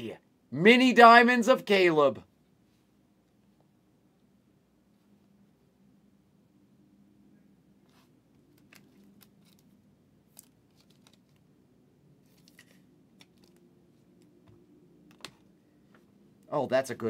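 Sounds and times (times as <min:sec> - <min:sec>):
low steady hum: 0:00.0 - 0:17.0
cards and plastic sleeve rustling: 0:07.9 - 0:11.6, 0:12.2 - 0:14.4.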